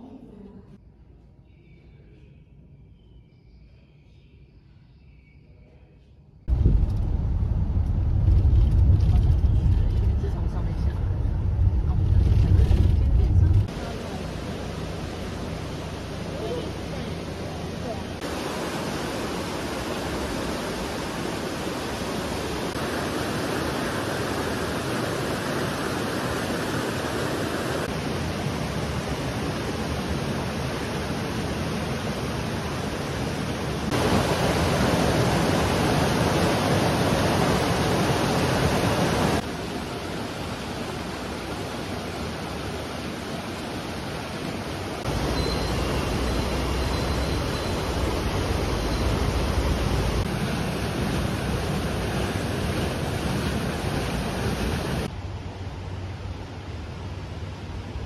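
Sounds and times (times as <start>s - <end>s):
low rumble: 6.5s - 18.2s
stream and waterfall rushing: 13.6s - 57.2s.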